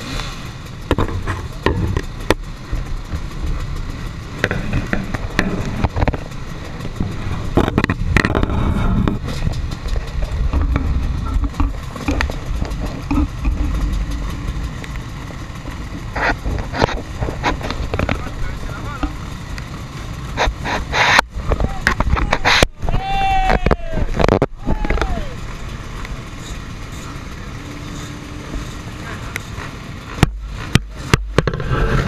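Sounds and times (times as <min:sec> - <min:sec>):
dirt bike engines rumbling: 0:00.0 - 0:32.0
crowd voices: 0:06.8 - 0:32.0.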